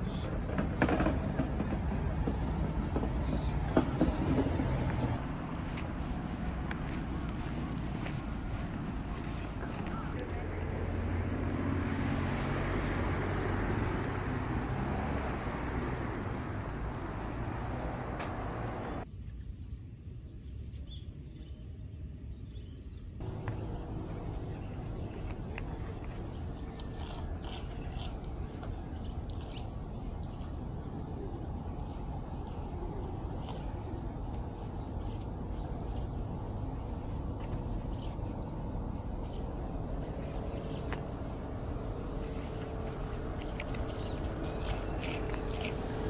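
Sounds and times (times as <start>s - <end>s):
open-air background: 0.0s - 46.0s.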